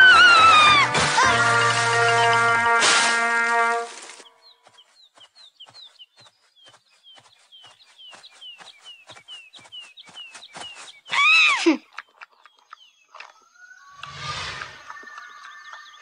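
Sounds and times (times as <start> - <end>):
songbirds chirping: 0.0 - 16.0
light quick footsteps: 0.9 - 11.3.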